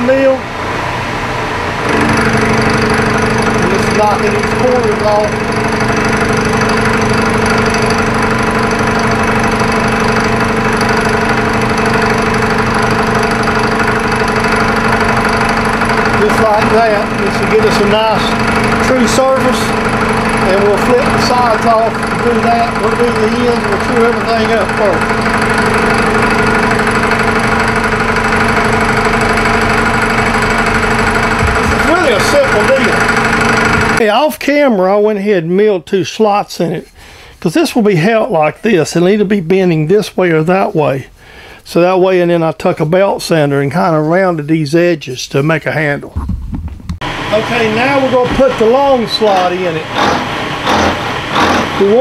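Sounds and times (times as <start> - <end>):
milling machine cutting aluminum: 1.8 - 34.0, 47.0 - 52.0.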